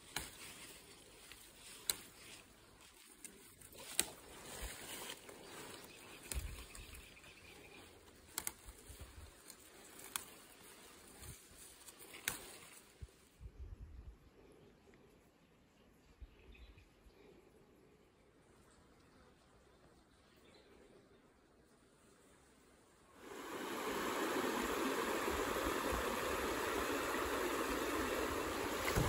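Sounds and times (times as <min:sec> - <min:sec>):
tea shoots snapping: 0:00.0 - 0:07.0, 0:08.1 - 0:12.9, 0:23.6 - 0:29.0
leaves rustling: 0:00.0 - 0:13.4, 0:23.1 - 0:29.0.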